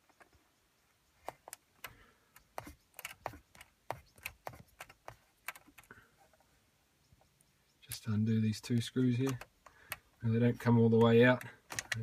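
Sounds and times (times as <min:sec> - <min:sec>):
fingers clicking on plastic: 0:01.2 - 0:05.9, 0:08.7 - 0:10.2, 0:10.9 - 0:12.0.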